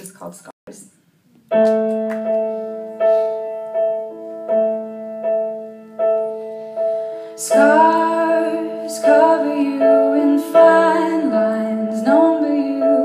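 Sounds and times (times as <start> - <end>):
keyboard playing piano chords: 1.5 - 13.0
woman singing: 7.4 - 13.0.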